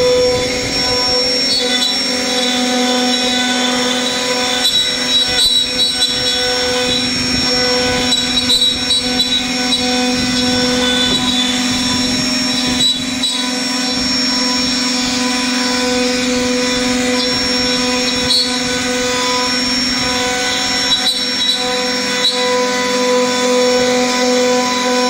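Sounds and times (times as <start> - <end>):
rough cutting noise: 0.0 - 25.0
router spindle humming: 0.0 - 25.0.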